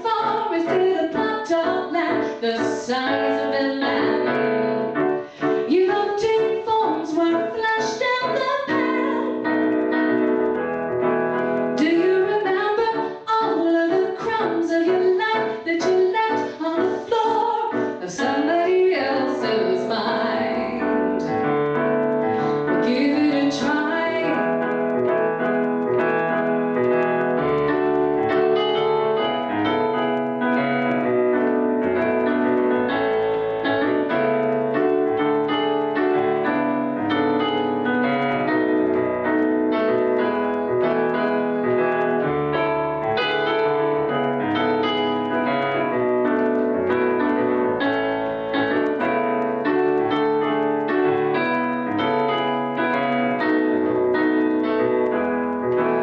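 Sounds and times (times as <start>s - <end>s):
woman singing: 0.0s - 4.9s, 5.6s - 9.5s, 11.8s - 21.1s, 22.7s - 24.4s
piano accompaniment: 0.0s - 56.0s.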